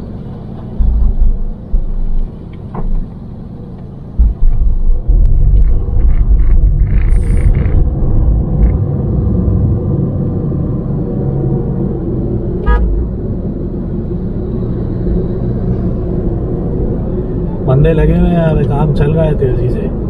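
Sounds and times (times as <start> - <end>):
engine and road rumble: 0.0 - 20.0
vehicle horn toot: 12.6 - 12.9.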